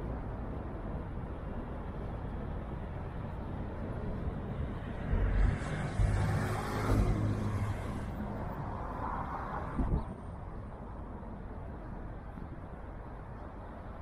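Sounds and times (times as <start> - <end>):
city background noise: 0.0 - 14.0
vehicle passing by: 5.1 - 10.0.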